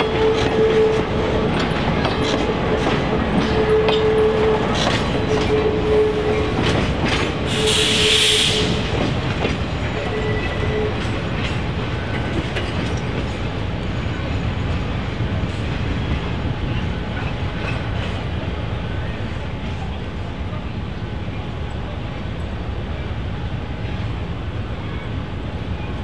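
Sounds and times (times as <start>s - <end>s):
train wheels clicking over rail joints: 0.0s - 13.6s
short burst of hiss: 7.5s - 8.8s.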